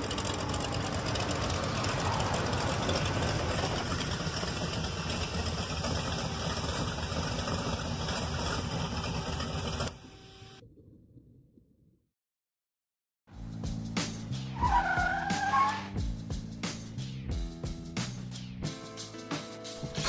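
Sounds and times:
loud dense rumbling noise: 0.0 - 7.3.

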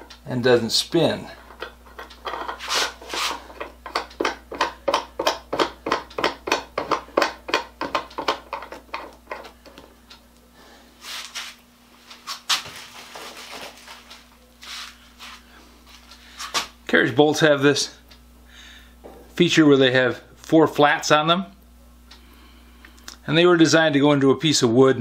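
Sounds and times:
faint steady hum: 0.0 - 25.0
rapid metallic clicking of vise: 1.4 - 9.8.

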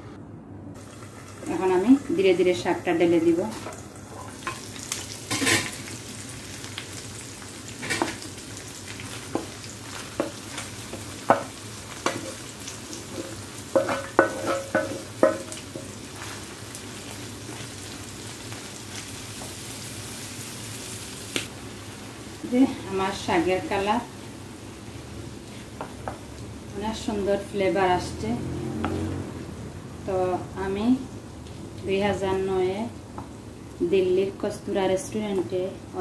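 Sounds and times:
food sizzling in a frying pan: 0.8 - 36.0
cookware knocking against a pan: 13.7 - 15.9.

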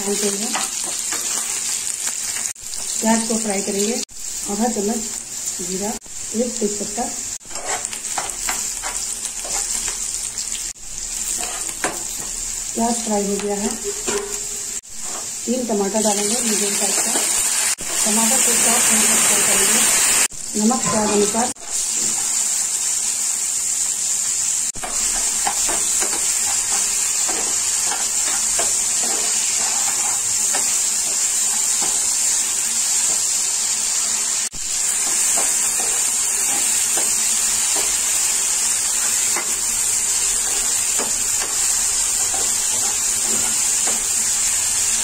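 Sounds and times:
vegetables sizzling in oil: 0.0 - 45.0
spatula scraping pan: 7.4 - 10.0, 11.2 - 12.3, 13.6 - 15.4, 24.8 - 32.4, 34.8 - 44.3.

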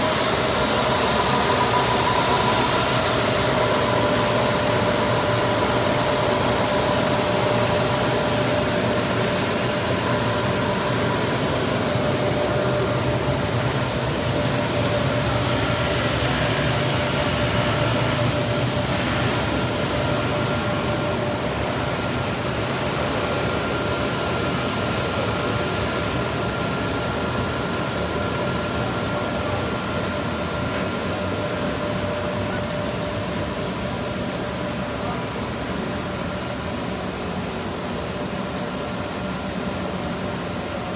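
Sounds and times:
machinery and blower rushing: 0.0 - 32.6.

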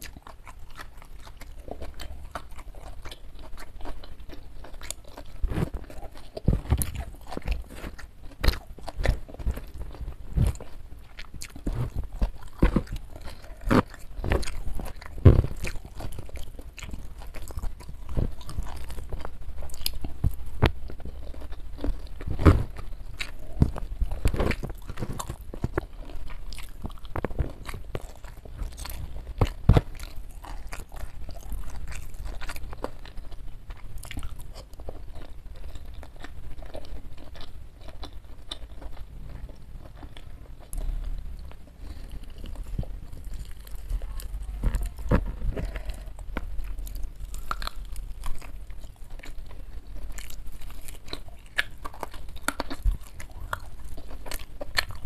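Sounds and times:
chewing and crunching food: 0.0 - 55.0.

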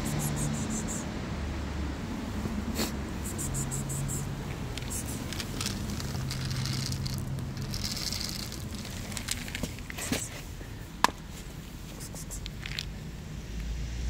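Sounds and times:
kibble rattling onto concrete: 3.3 - 11.2, 12.0 - 13.0
scattered clicks and knocks: 4.5 - 10.3.

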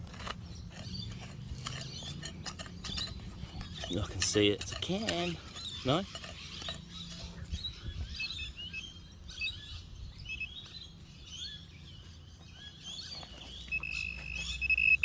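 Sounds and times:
digging in soft soil: 0.0 - 7.5
small birds chirping: 0.0 - 15.0
metal detector steady beep: 13.7 - 15.0.

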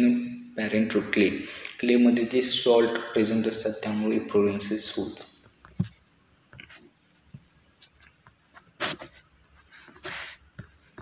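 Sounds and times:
stylus scratchy strokes: 8.6 - 11.0.

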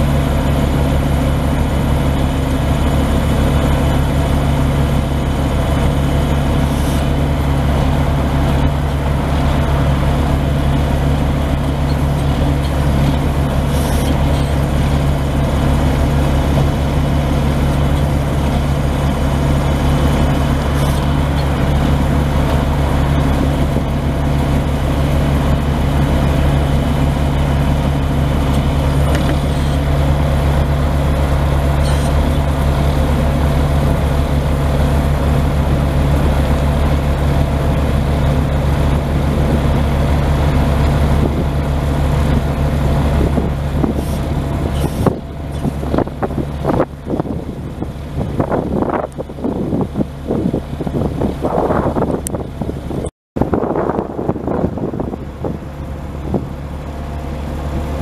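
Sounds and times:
diesel truck engine idling: 0.0 - 58.0.

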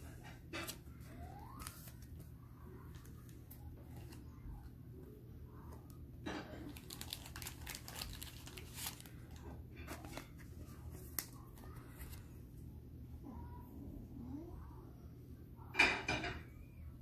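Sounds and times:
plastic sleeve crinkling: 6.6 - 12.2.

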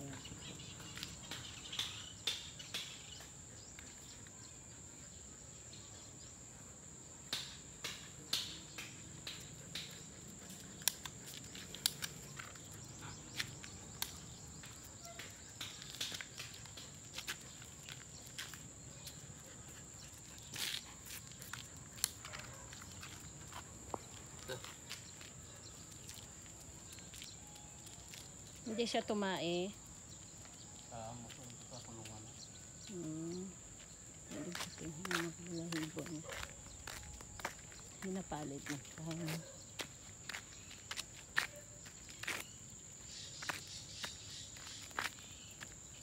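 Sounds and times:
footsteps on concrete: 9.3 - 29.0, 33.8 - 42.6, 43.3 - 45.9.

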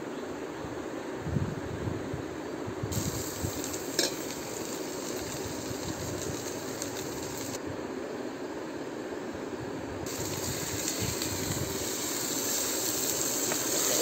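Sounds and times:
paste sizzling in hot oil: 2.9 - 7.6, 10.1 - 14.0.

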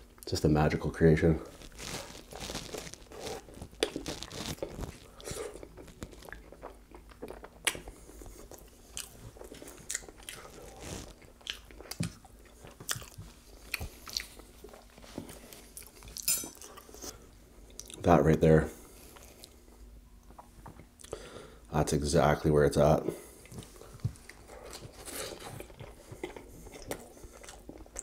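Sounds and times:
chewing with mouth clicks: 2.4 - 17.1, 23.4 - 28.0.

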